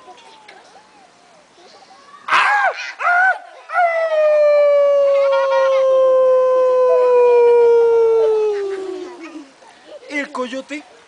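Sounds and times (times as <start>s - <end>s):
man imitating coyote howl: 2.3s - 9.2s.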